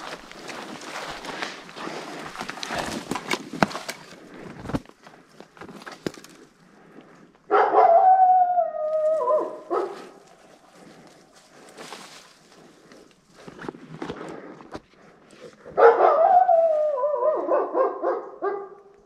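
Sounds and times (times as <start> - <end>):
twigs and branches crackling: 0.0 - 17.4
loud long howl: 7.7 - 10.0, 16.0 - 17.6.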